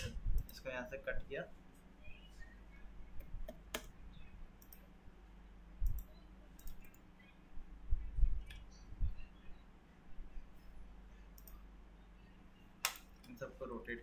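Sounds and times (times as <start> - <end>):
computer mouse clicking: 3.2 - 3.9, 4.6 - 4.9, 5.8 - 7.1, 8.4 - 8.7, 11.3 - 11.6.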